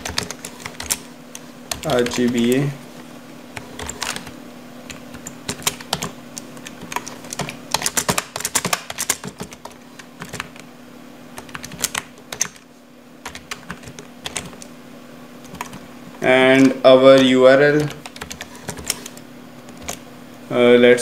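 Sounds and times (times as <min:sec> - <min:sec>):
computer keyboard typing: 0:00.0 - 0:02.7, 0:03.5 - 0:10.7, 0:11.4 - 0:14.7, 0:15.4 - 0:15.8, 0:16.5 - 0:20.0
faint steady hum: 0:00.0 - 0:21.0.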